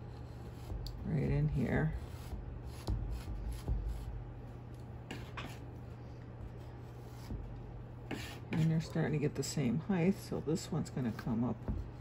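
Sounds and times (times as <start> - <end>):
low steady hum: 0.0 - 12.0
palette knife scraping canvas: 5.1 - 5.7, 8.1 - 8.9.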